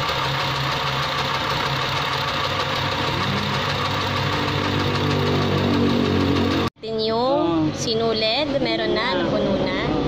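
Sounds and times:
small sewing machine motor running: 0.0s - 6.7s.

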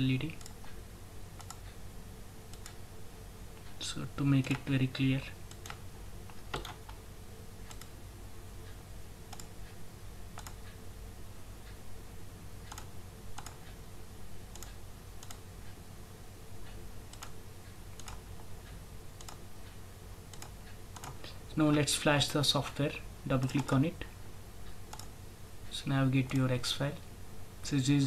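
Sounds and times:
computer mouse clicking: 0.3s - 0.8s, 1.4s - 1.8s, 2.5s - 2.8s, 4.4s - 4.7s, 5.5s - 7.0s, 7.6s - 8.0s, 9.3s - 9.8s, 10.4s - 10.8s, 12.6s - 13.8s, 14.5s - 15.5s, 16.6s - 17.4s, 18.0s - 19.4s, 20.3s - 21.3s, 23.4s - 23.8s, 24.7s - 25.1s, 26.2s - 26.6s.

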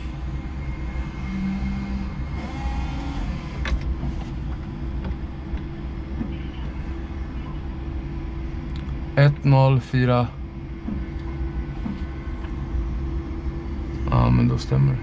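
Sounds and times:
forklift motor hum: 0.0s - 9.1s.

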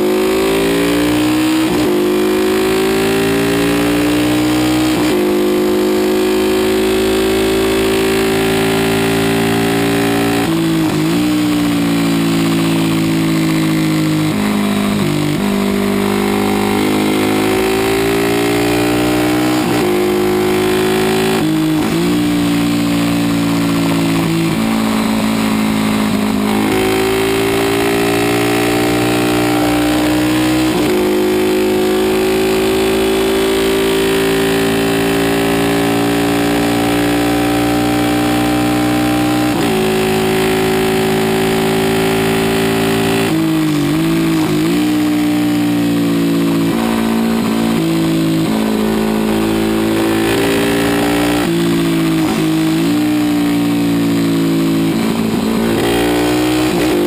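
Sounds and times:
racing motorcycle engine at full throttle: 0.0s - 57.0s.

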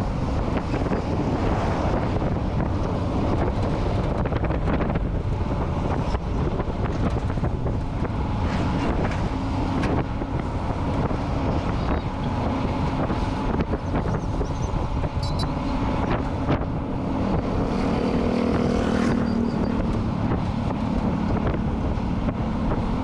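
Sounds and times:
vehicle driving rumble: 0.0s - 23.0s
wind buffeting microphone: 0.0s - 23.0s.

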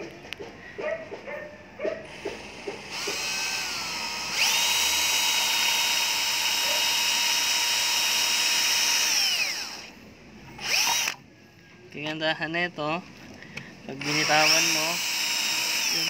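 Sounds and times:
drill motor whining: 2.0s - 10.0s, 10.6s - 11.2s, 13.9s - 16.0s.

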